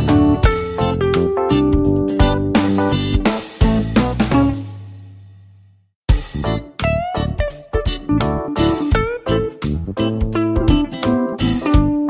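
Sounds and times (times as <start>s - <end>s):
plucked instrumental music: 0.0s - 5.1s, 6.1s - 12.0s.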